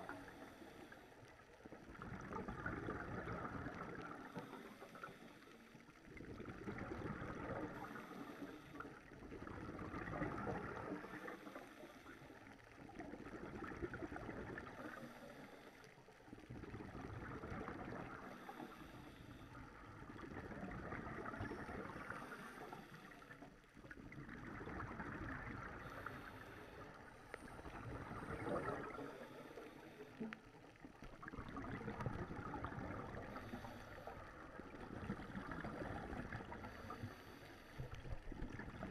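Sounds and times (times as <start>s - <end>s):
exhaled bubbles gurgling underwater: 0.0s - 38.9s.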